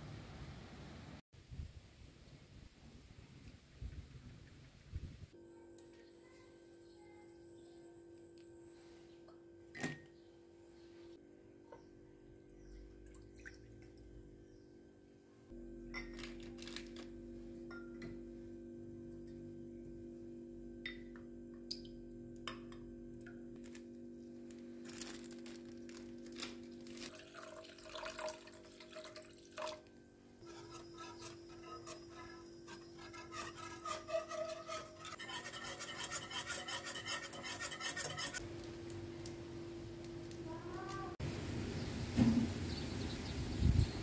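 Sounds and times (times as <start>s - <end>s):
liquid pouring into pan: 27.1s - 29.9s
cheese grating: 30.4s - 38.4s
utensils clicking on pan: 30.4s - 38.4s.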